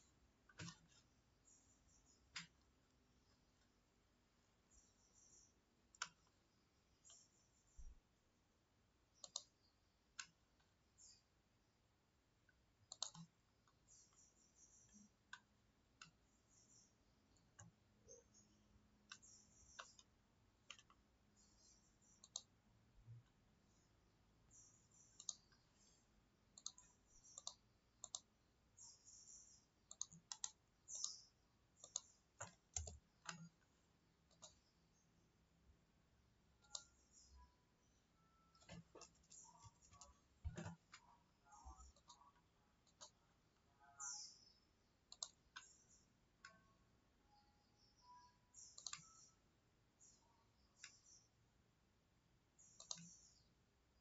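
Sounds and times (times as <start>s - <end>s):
computer mouse clicks: 0.0s - 2.7s, 4.7s - 7.8s, 9.1s - 11.2s, 12.4s - 22.6s, 24.5s - 34.8s, 36.6s - 37.9s, 38.5s - 43.2s, 44.0s - 46.6s, 47.8s - 49.3s, 50.0s - 51.3s, 52.6s - 53.5s.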